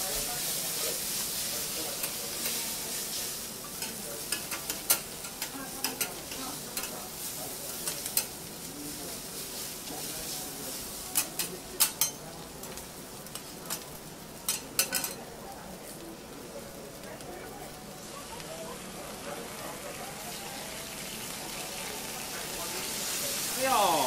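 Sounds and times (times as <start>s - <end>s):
noodles sizzling on a griddle: 0.0s - 24.0s
metal spatulas clacking: 11.2s - 12.2s.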